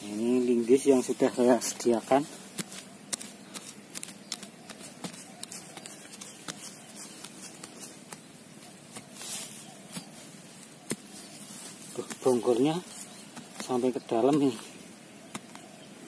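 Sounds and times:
grass rustling: 0.0 - 16.0
crowbar knocking and scraping soil: 1.6 - 8.3, 8.9 - 11.3.

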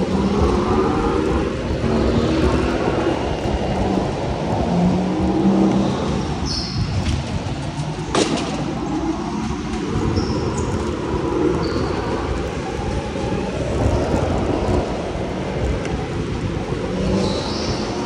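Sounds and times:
go-kart motor and tyre noise: 0.0 - 18.0.

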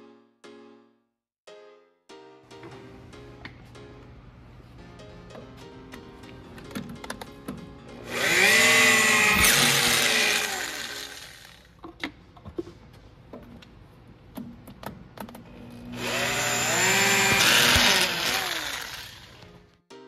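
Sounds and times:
tool handling clicks and taps: 6.6 - 7.7
electric drill reaming metal: 8.1 - 11.7, 15.7 - 19.5.

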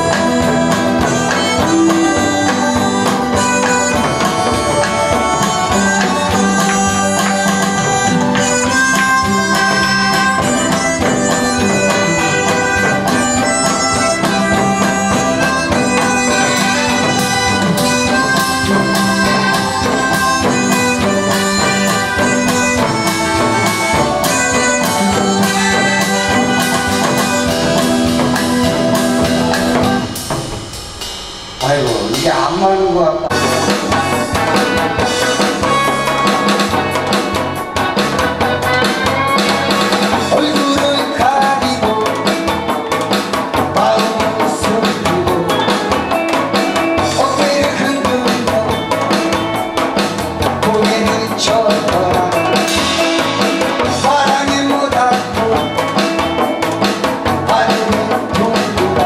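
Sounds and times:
band backing with drum beat: 0.0 - 59.0
harmonica melody: 0.0 - 59.0.

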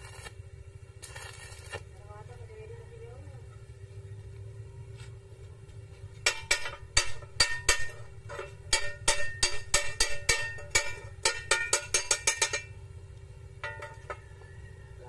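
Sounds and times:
hammer clanging on steel pipe: 6.3 - 12.8, 13.6 - 14.2.

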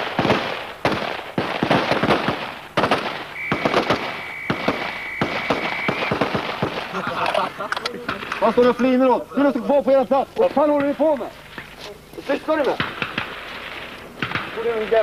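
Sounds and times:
assault rifles firing rapid shots: 0.0 - 7.0, 12.5 - 15.0
steady high tone: 3.4 - 6.4.

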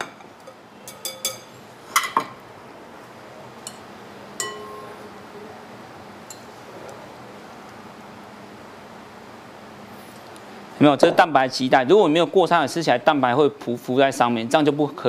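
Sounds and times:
whisk clinking glass bowl: 4.4 - 4.9.

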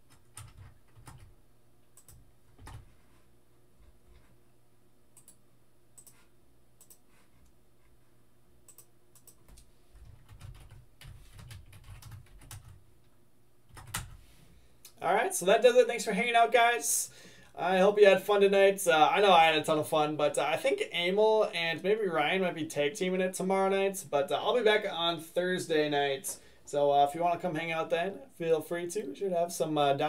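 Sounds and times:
typing on computer keyboard: 0.1 - 1.3, 8.7 - 12.8, 13.7 - 14.2.

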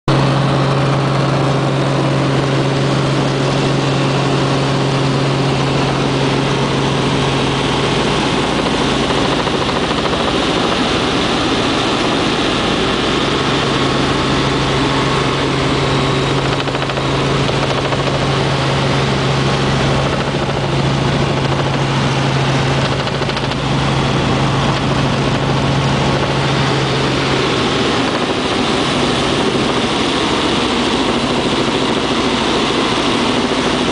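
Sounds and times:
helicopter engine and rotor drone: 0.1 - 33.9.

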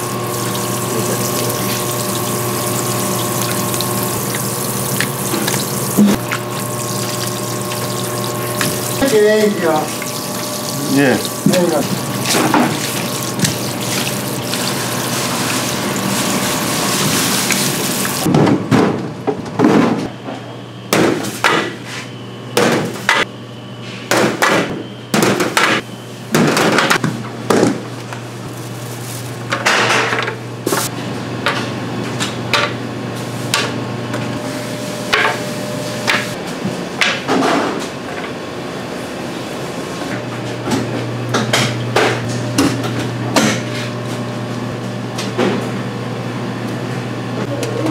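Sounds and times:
running water spraying: 0.0 - 18.3.

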